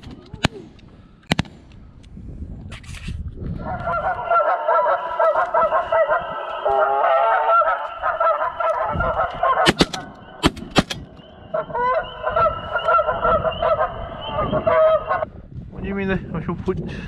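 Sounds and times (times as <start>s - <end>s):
shotgun shots: 1.3s - 1.6s, 9.6s - 11.2s
geese honking: 3.6s - 15.3s.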